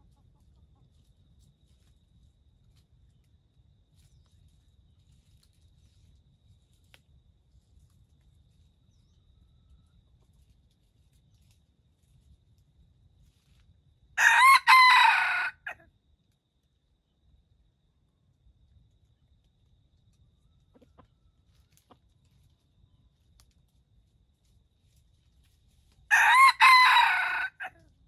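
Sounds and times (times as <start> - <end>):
rooster crowing: 14.2 - 15.8, 26.1 - 27.8.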